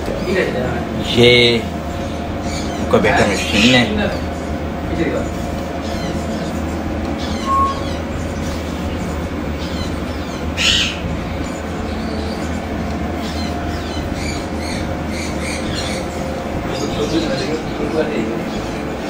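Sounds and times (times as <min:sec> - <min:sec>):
machine hum: 0:00.0 - 0:19.0
bird squawk: 0:05.8 - 0:11.1
faint bird chirps: 0:05.8 - 0:17.8.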